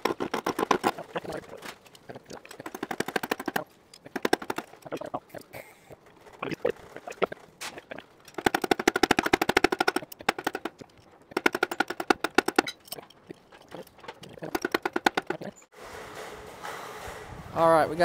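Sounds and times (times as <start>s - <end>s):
ratchet wrench clicking: 8.2s - 15.5s.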